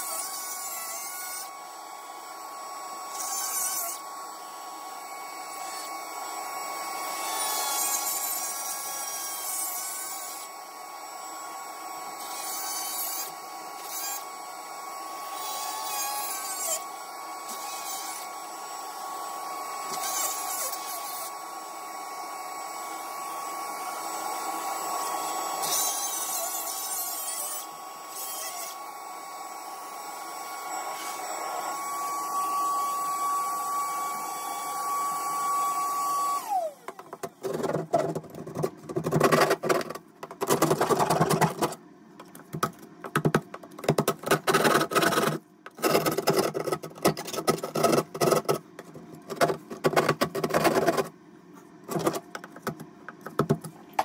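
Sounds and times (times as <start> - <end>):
shop vacuum whining: 13.2 - 26.4, 27.6 - 42.3
hand tool scraping and tapping wall: 37.2 - 51.1, 51.9 - 53.8.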